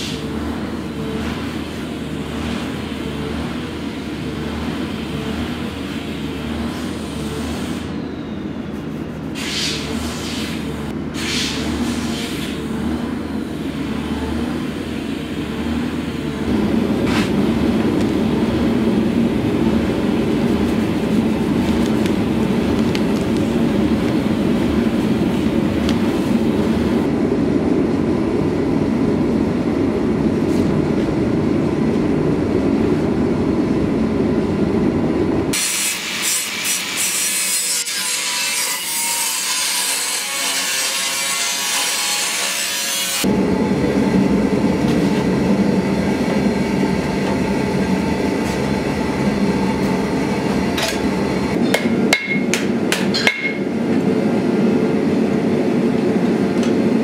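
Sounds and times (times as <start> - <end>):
steady low rumble: 12.6 - 35.6, 43.2 - 51.6
angle grinder cutting sheet metal: 35.5 - 43.3
hammer striking anvil: 51.6 - 53.7.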